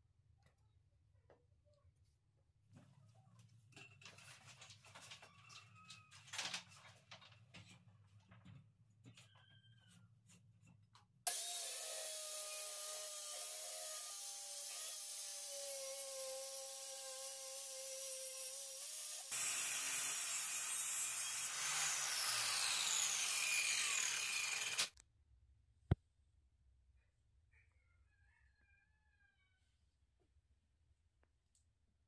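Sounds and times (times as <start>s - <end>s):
circular saw cutting plywood: 11.3s - 25.0s.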